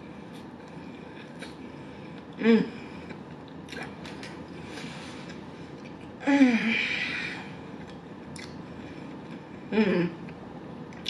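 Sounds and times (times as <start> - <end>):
woman humming mm: 2.4 - 2.9, 9.7 - 10.4.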